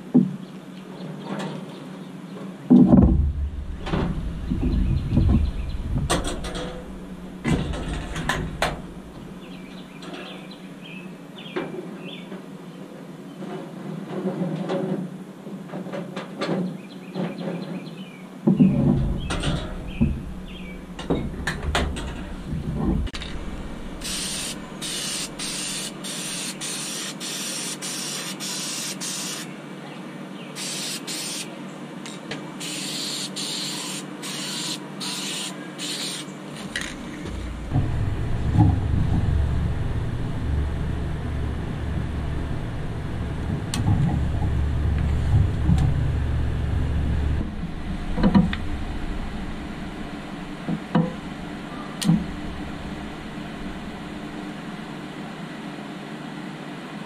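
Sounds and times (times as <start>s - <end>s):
steady low hum: 2.1s - 11.6s, 18.4s - 57.0s
louder knocks: 2.7s - 8.9s
masking tape peeling: 24.0s - 29.5s, 30.6s - 31.5s, 32.6s - 37.2s
spray paint hissing: 24.0s - 29.5s, 30.6s - 31.5s, 32.6s - 36.3s.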